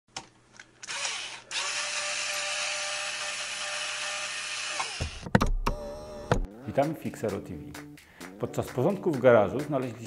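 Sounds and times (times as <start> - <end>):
power tool whining: 0.8 - 6.5.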